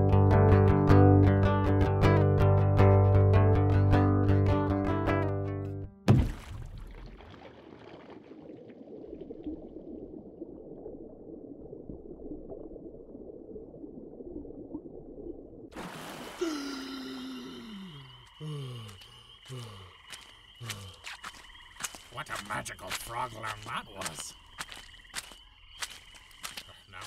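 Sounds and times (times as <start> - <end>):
watery bubbling and gurgling: 6.1 - 19.9
frog-like croaking calls: 16.8 - 27.0.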